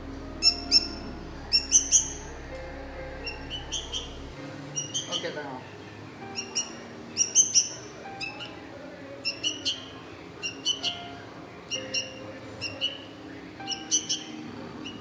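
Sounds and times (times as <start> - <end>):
chick begging chirps: 0.4 - 2.3, 3.2 - 5.2, 6.3 - 8.5, 9.2 - 15.0.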